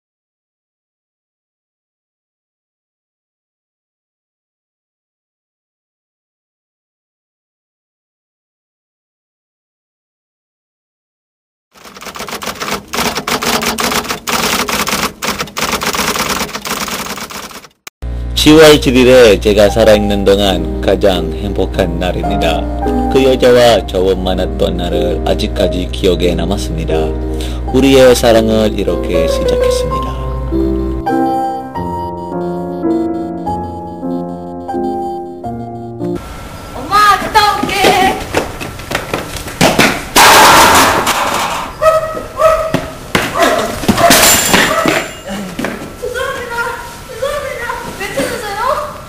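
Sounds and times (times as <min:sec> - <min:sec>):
rapid keyboard typing: 0:11.8 - 0:17.8
slow piano melody: 0:18.6 - 0:36.6.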